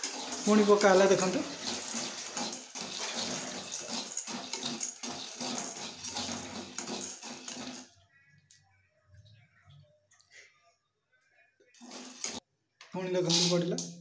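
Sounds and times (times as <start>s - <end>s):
spatula scraping chickpeas in metal pan: 0.0s - 7.9s, 11.8s - 12.4s.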